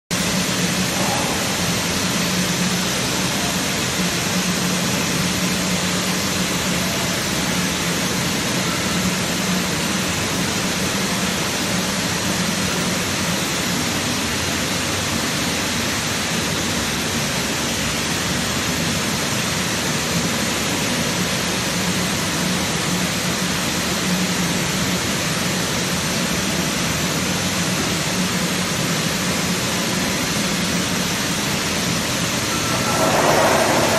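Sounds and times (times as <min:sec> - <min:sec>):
low machinery hum: 0:00.1 - 0:23.0, 0:28.8 - 0:33.9
workshop machinery hissing: 0:31.6 - 0:33.9.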